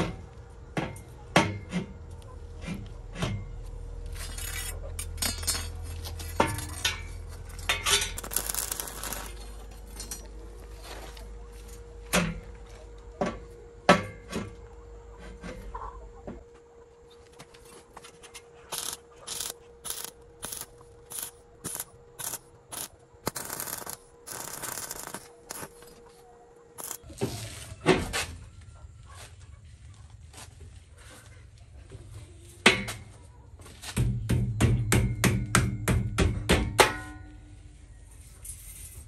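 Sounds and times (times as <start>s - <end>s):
arc welding hisses: 8.2s - 9.4s, 18.7s - 25.7s, 26.8s - 27.0s.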